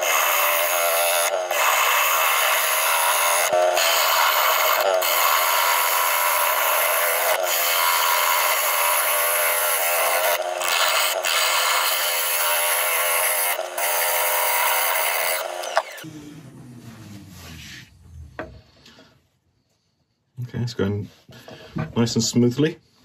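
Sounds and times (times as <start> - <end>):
lathe tool cutting wood: 0.0 - 16.0.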